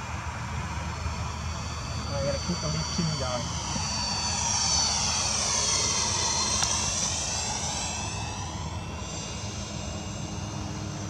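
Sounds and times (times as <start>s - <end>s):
model jet fan whining past: 0.0s - 11.0s.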